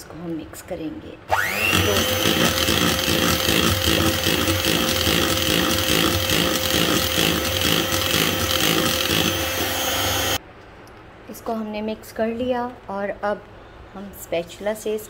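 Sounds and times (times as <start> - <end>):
electric hand mixer whining: 1.3 - 10.4.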